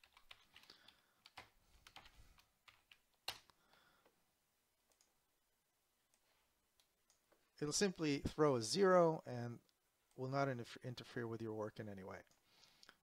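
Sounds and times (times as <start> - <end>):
faint keyboard typing: 0.0 - 4.2, 4.8 - 5.2.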